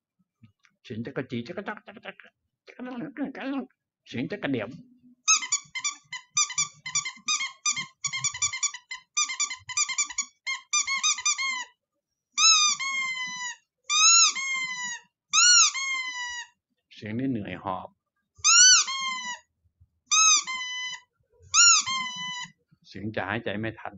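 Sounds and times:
high-pitched animal chirps: 5.3 - 11.8, 12.4 - 16.6, 18.4 - 19.5, 20.1 - 22.6.

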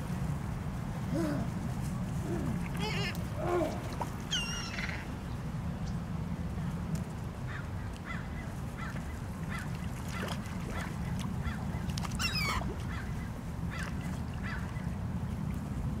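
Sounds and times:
gulls squawking: 4.3 - 5.1, 12.2 - 14.6.

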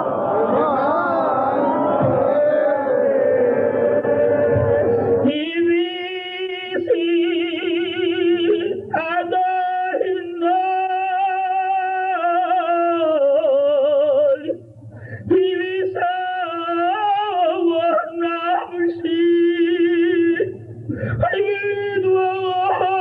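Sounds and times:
man chanting a prayer: 5.2 - 14.6, 15.2 - 23.0.

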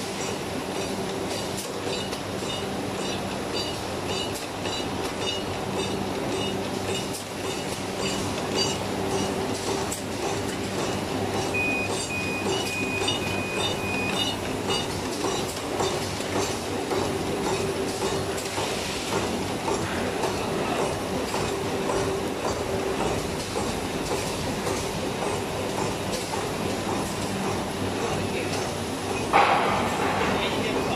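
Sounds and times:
machine humming and clattering: 0.0 - 30.9
short high-pitched tones: 11.6 - 14.4.

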